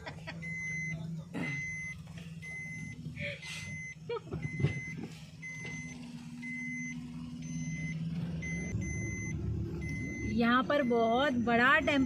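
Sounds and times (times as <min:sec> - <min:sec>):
car engine and road hum: 0:00.0 - 0:12.0
electronic warning beeps: 0:00.4 - 0:03.0, 0:03.6 - 0:12.0.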